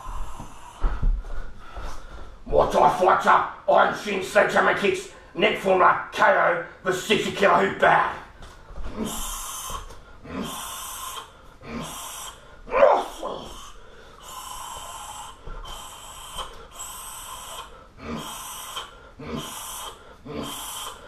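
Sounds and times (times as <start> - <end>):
voiced grunt: 8.9 - 21.0
sharp hissing exhalations: 9.0 - 12.6, 13.3 - 21.0.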